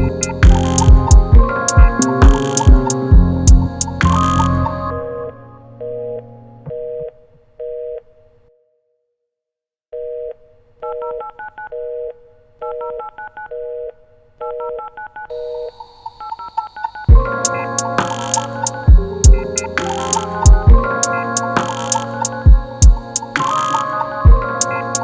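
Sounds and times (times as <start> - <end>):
loud music: 0.0 - 5.1, 17.1 - 25.0.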